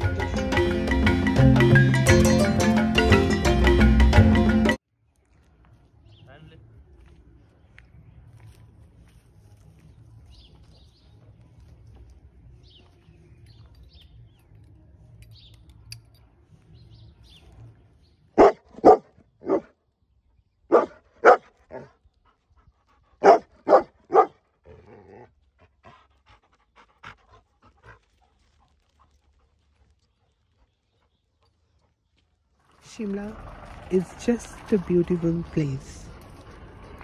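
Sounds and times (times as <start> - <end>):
dog barking: 18.4 - 19.7, 20.7 - 21.9, 23.2 - 24.4.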